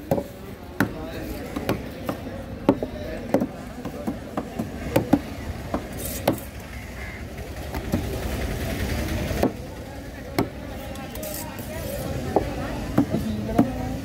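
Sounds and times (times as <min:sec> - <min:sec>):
knife chopping fish on wooden board: 0:00.1 - 0:06.5.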